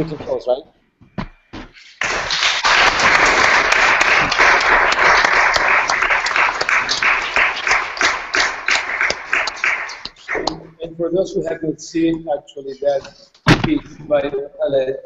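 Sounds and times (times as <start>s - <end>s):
audience applauding: 2.0s - 10.6s.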